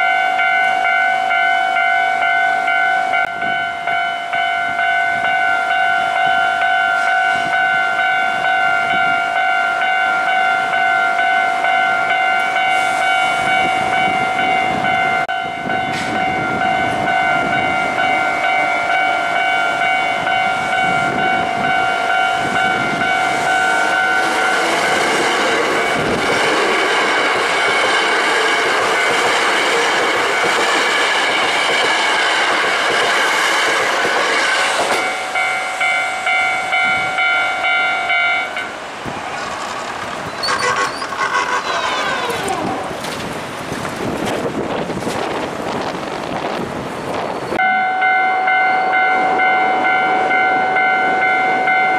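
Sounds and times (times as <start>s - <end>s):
level crossing alarm bell: 0.0s - 31.1s, 35.0s - 38.8s, 47.6s - 51.9s
electric train passing on rails: 0.0s - 51.9s.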